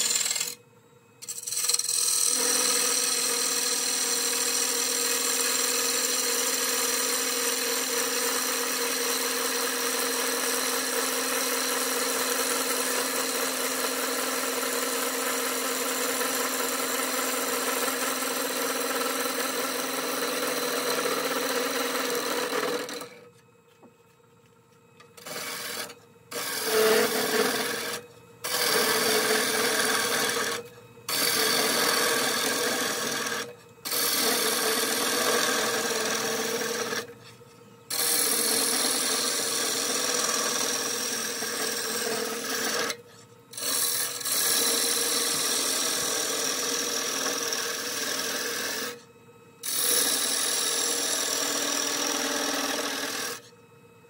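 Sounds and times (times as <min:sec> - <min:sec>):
lathe tool scraping wood: 0:00.0 - 0:00.6, 0:01.2 - 0:08.4, 0:16.0 - 0:23.2, 0:25.2 - 0:49.0, 0:49.6 - 0:53.5.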